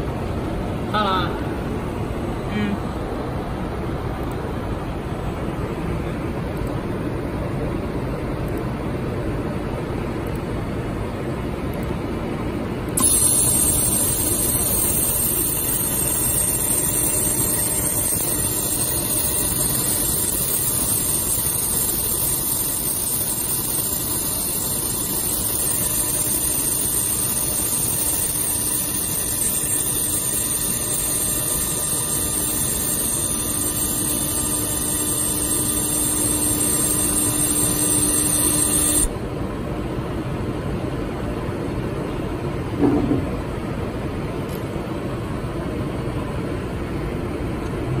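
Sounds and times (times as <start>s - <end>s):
machine hum: 0.0s - 48.0s
laser welder hiss: 13.0s - 39.1s.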